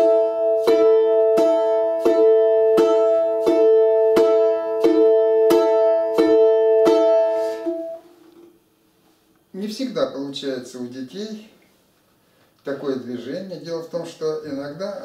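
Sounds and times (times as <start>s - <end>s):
balalaika strumming: 0.0s - 8.6s.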